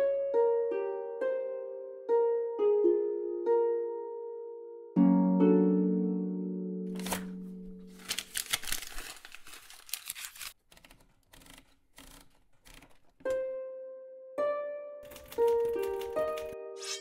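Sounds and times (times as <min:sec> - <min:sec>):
plucked harp-like chord: 0:00.0 - 0:06.8, 0:16.6 - 0:17.0
paper rattling from typewriter: 0:06.9 - 0:13.4, 0:15.0 - 0:16.6
typewriter mechanism clicks: 0:15.1 - 0:16.5.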